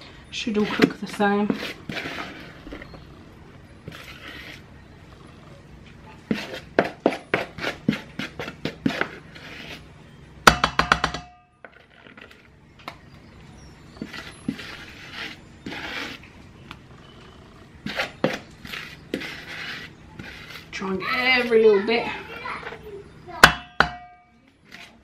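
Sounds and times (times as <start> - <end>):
wooden spoon knocking on bowl: 10.5 - 11.4, 23.4 - 24.3.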